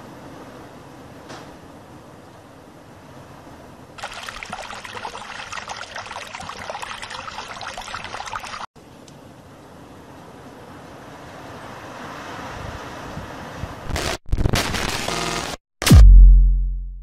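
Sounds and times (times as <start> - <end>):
water pouring and splashing: 4.0 - 8.7.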